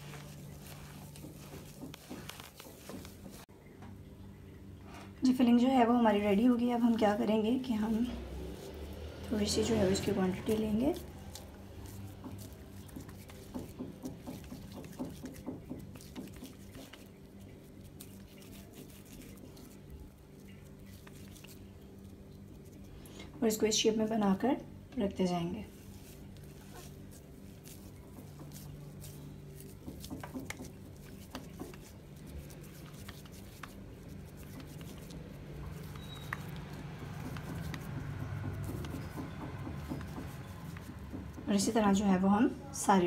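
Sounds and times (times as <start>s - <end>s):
hands patting wet mashed potato: 0.0s - 3.5s, 6.4s - 22.9s, 25.6s - 42.2s
faint low hum: 0.0s - 43.0s.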